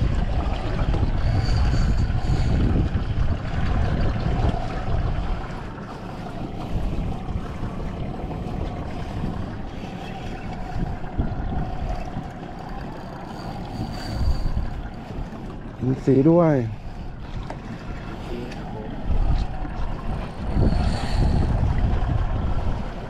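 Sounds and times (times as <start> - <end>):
boat at sea: 0.0 - 23.0
steady hum: 0.0 - 23.0
water: 0.0 - 23.0
wind buffeting microphone: 0.0 - 23.0.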